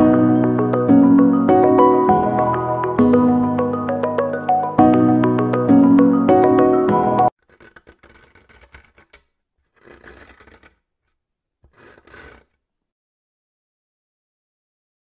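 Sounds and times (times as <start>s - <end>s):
marker scratching on paper: 7.4s - 10.8s, 11.6s - 12.6s.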